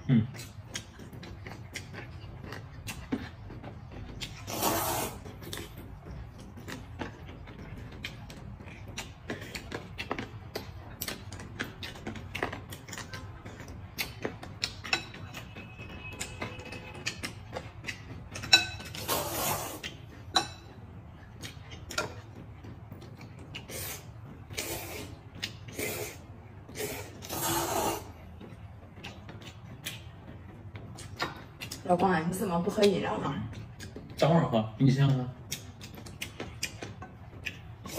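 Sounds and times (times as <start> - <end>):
chewing: 0.0 - 32.0, 32.7 - 34.3, 35.0 - 37.9
slurping noodles: 4.4 - 5.3, 19.0 - 20.0, 23.6 - 28.2.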